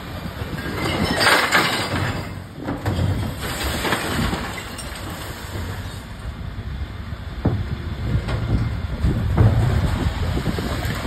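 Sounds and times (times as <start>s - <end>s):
truck engine rumble: 0.0s - 11.0s
rubbish crashing into truck hopper: 0.4s - 6.0s, 8.2s - 11.0s.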